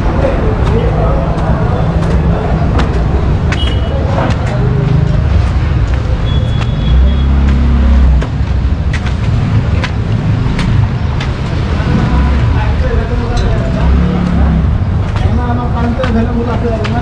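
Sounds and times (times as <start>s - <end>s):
vehicle engines passing: 0.0s - 17.0s
loud engine drone: 11.5s - 13.0s.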